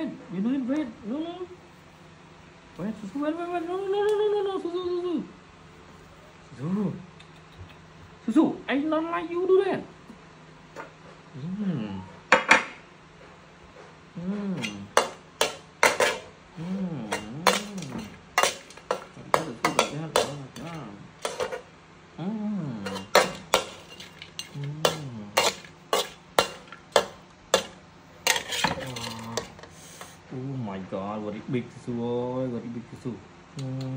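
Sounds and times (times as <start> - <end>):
man murmuring: 11.3 - 12.2, 16.6 - 18.0, 24.6 - 25.4
metal spoon scraping a wok: 14.6 - 16.4, 17.1 - 21.7, 22.8 - 30.2.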